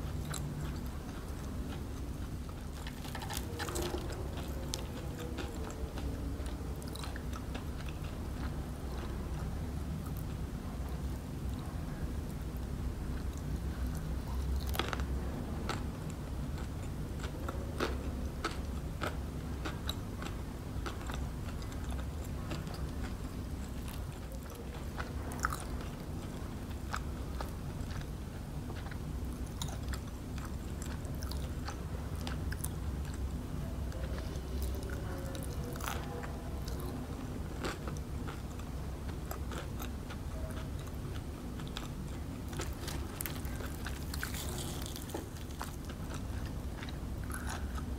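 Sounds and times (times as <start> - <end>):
chewing fried chicken: 0.0 - 47.9
steady low hum: 0.0 - 47.9
crunching coating: 42.5 - 47.8.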